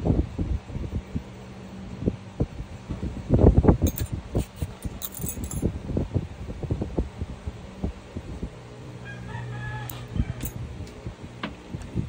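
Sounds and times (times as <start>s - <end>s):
handling knocks and bumps: 3.9s - 5.7s
metal tools clinking: 3.9s - 5.7s, 10.4s - 10.6s.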